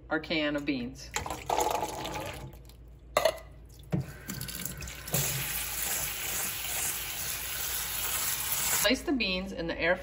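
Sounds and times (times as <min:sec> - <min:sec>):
liquid splashing into colander: 0:01.1 - 0:08.8
faucet water running: 0:03.6 - 0:08.9.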